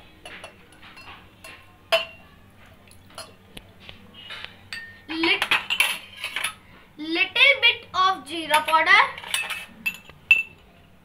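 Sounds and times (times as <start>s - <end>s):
spoon clinking against glass: 0.3s - 2.2s, 3.1s - 3.4s, 4.7s - 6.6s, 9.2s - 10.6s.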